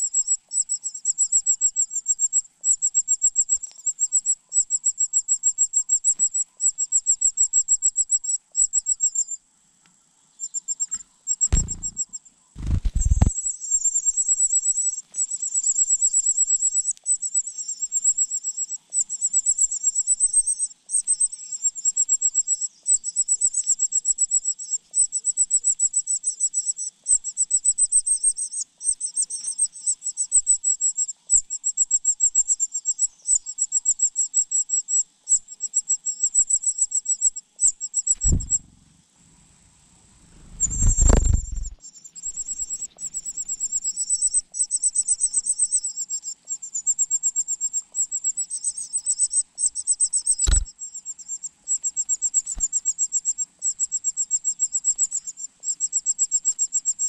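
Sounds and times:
dull low thumps: 11.5 - 12.0, 12.6 - 13.3, 38.2 - 38.9, 40.2 - 41.8.

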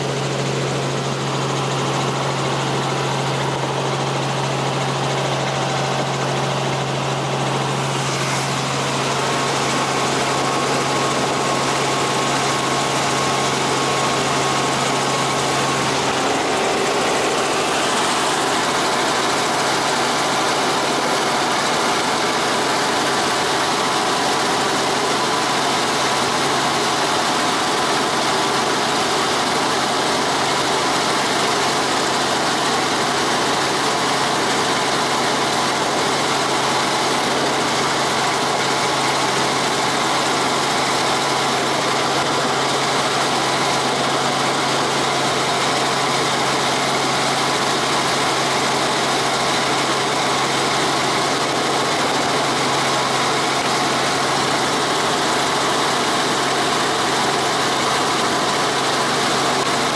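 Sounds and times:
helicopter engine and rotor drone: 0.0 - 59.9
wide rushing noise: 1.6 - 20.6.

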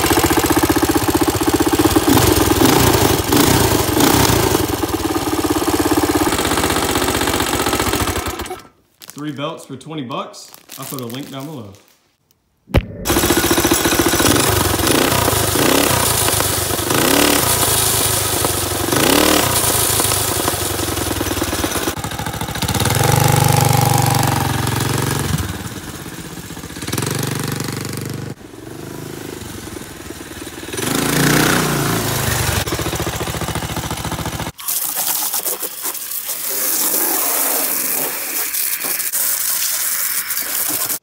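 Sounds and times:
small engine revving: 0.0 - 8.7, 13.1 - 34.6.

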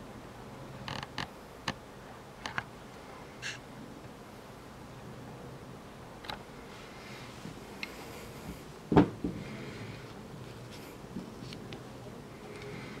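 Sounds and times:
loud knock: 8.9 - 9.4.

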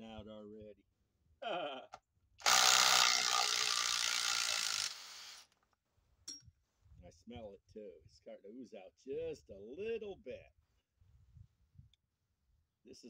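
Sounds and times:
impact driver hammering: 2.4 - 5.4.

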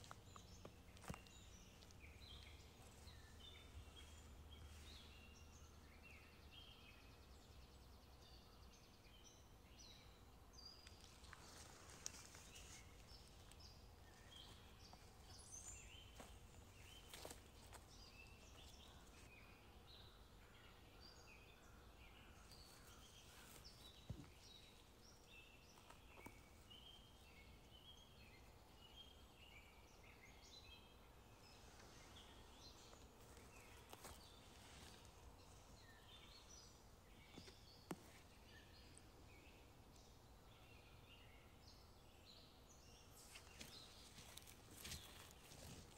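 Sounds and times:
low background hiss: 0.0 - 45.9
small birds chirping: 0.0 - 45.9.

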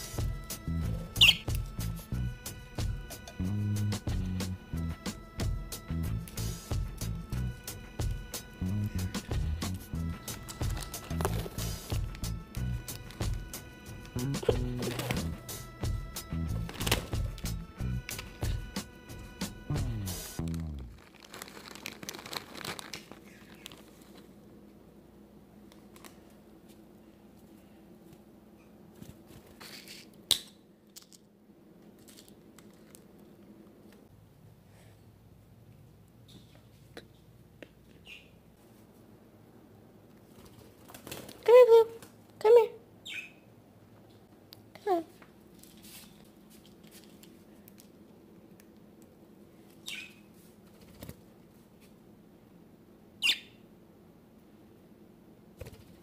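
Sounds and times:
faint steady hum: 0.0 - 56.0
budgerigar chirps: 1.2 - 1.5, 43.0 - 43.4, 49.8 - 50.2, 53.2 - 53.6
plastic bag rustling: 10.2 - 12.2, 14.4 - 15.4, 16.5 - 17.4, 20.4 - 24.4.

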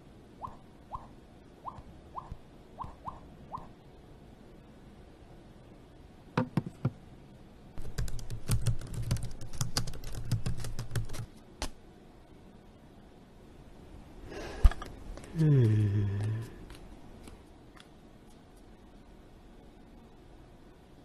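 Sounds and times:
typing on laptop keyboard: 7.8 - 11.3.

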